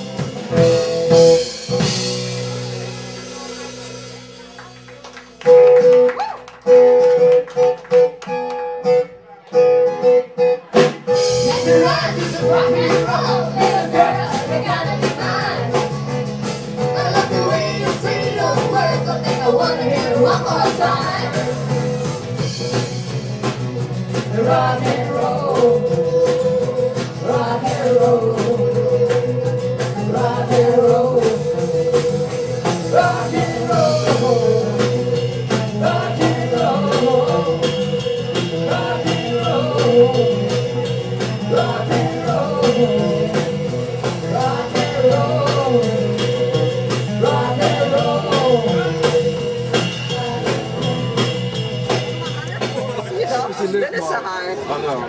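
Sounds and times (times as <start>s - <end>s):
acoustic guitars strumming: 0.0s - 54.1s
people singing together: 11.2s - 16.0s, 16.8s - 21.8s, 24.1s - 53.5s.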